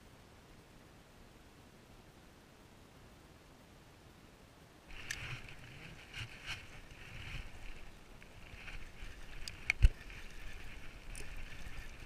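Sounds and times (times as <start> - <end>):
fishing reel whirring and clicking: 4.9 - 12.0.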